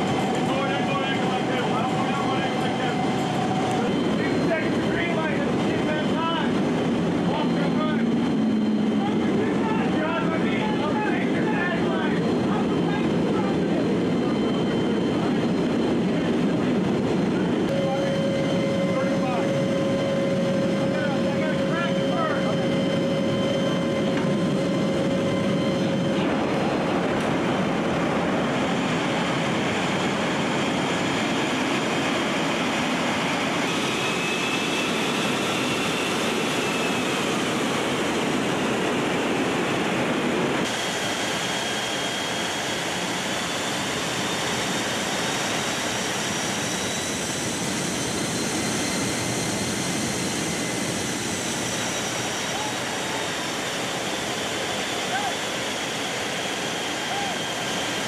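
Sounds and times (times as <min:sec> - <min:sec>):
aircraft engines and rushing air: 0:00.0 - 0:58.0
faint high whine: 0:17.3 - 0:29.5.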